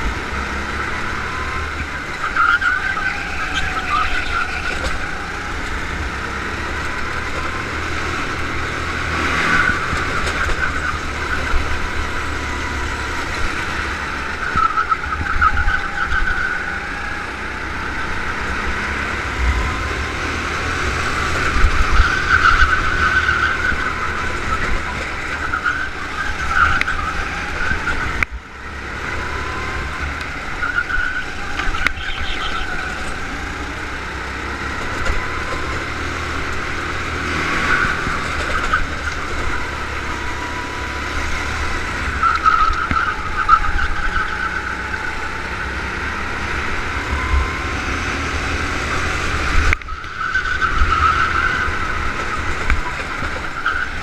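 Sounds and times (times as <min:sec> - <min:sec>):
go-kart engine revving: 0:00.0 - 0:54.0
heavy low rumble: 0:19.2 - 0:21.9.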